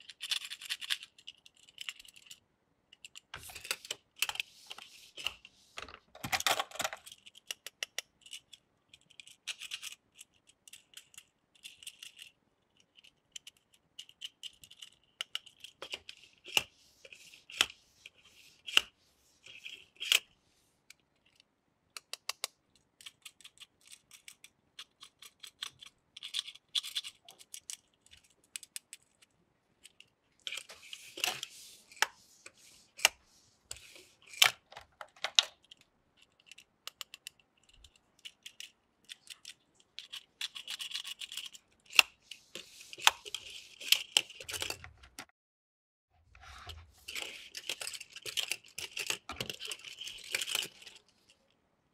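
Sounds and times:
toy cars clicking on plastic: 0:00.0 - 0:04.4, 0:05.3 - 0:17.7, 0:20.9 - 0:31.4, 0:33.0 - 0:42.2, 0:47.0 - 0:51.3
toy cars rolling scrapes: 0:46.4 - 0:51.2.

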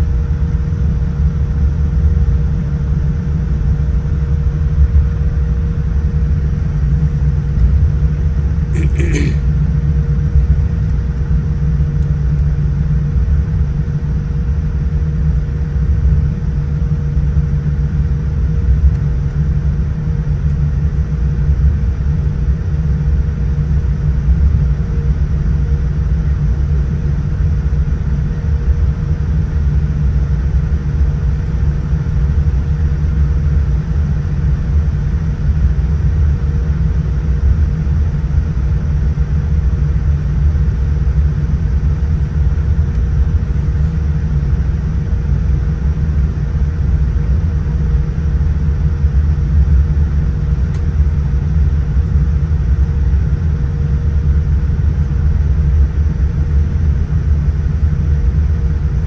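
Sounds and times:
deep cabin rumble: 0:04.8 - 0:11.6.

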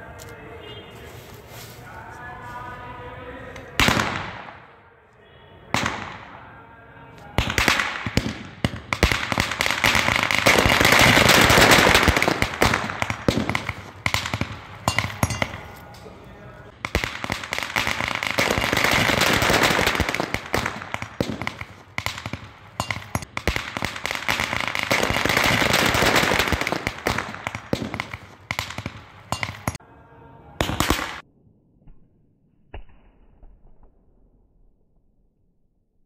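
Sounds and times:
firecrackers crackling: 0:03.6 - 0:04.8, 0:07.3 - 0:29.8, 0:30.6 - 0:31.2
loud firecracker burst: 0:07.4 - 0:15.2, 0:16.7 - 0:29.1.

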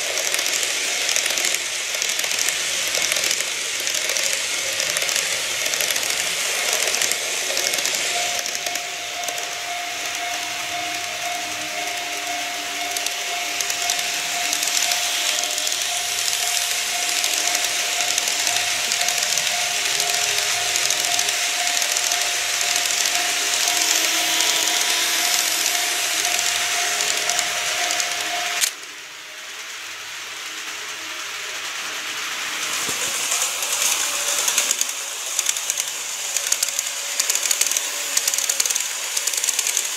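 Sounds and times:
motor whine: 0:00.0 - 0:30.1
model trains running on track: 0:00.0 - 0:39.9.

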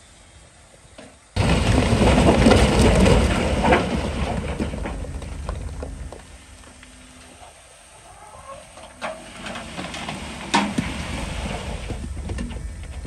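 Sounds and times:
rock crashing off truck bed: 0:01.4 - 0:06.8, 0:08.9 - 0:13.0.

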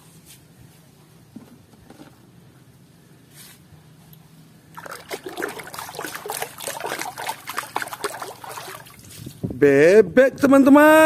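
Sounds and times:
water splashing in a bucket: 0:04.7 - 0:09.3.

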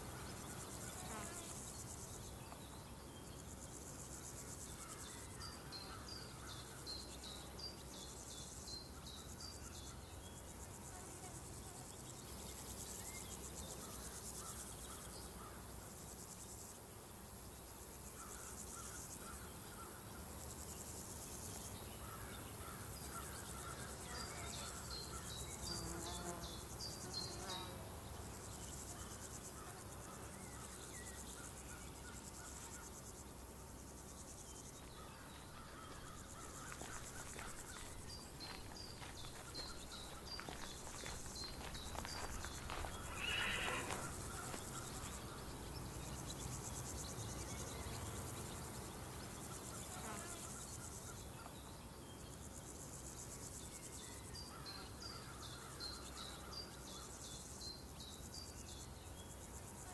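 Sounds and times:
crickets and insects chirring: 0:00.0 - 0:59.9
high even insect trill: 0:18.2 - 0:59.9
small birds chirping: 0:30.2 - 0:48.7.

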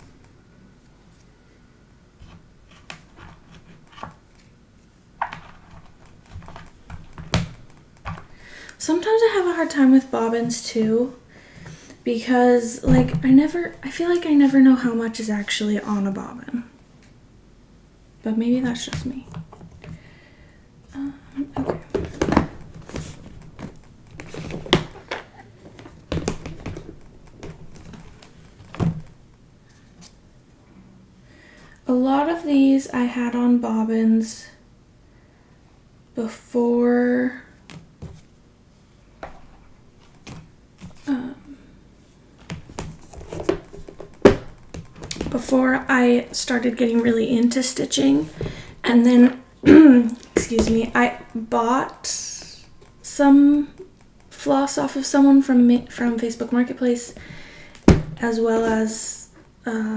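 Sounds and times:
plastic boxes clicking and knocking: 0:05.2 - 0:08.5, 0:21.5 - 0:29.2, 0:42.4 - 0:48.8.

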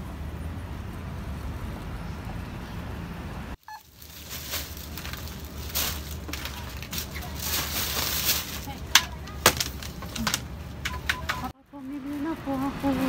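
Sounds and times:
street low rumble: 0:00.0 - 0:13.0
plastic packaging rustling: 0:03.6 - 0:11.5.

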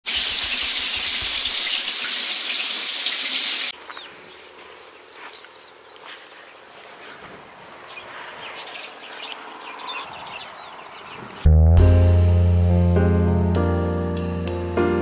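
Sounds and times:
shower spraying onto tiles: 0:00.1 - 0:03.7.

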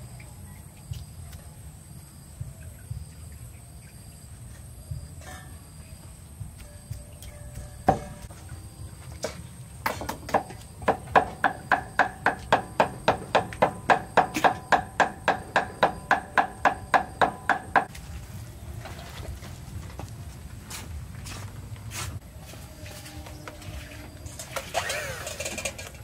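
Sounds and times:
cleaver chopping meat on wood: 0:09.8 - 0:17.9.

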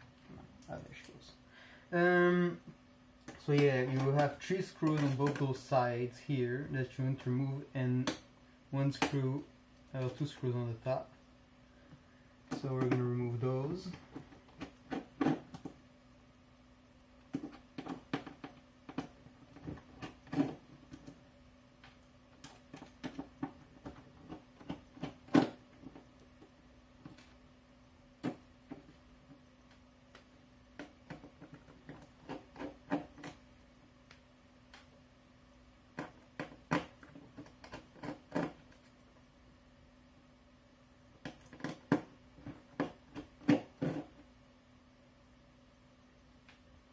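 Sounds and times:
faint low hum: 0:00.0 - 0:46.9
screwdriver clicking on plastic: 0:36.0 - 0:38.9.

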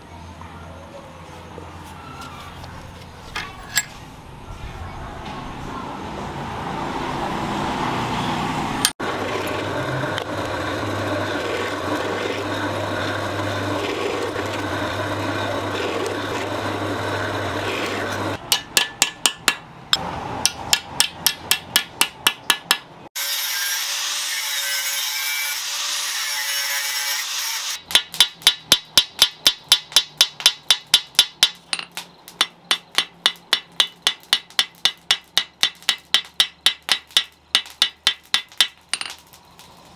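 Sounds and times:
rasping scraping: 0:09.0 - 0:19.0
hammer tapping steel pins: 0:18.4 - 0:22.9, 0:27.8 - 0:39.2.

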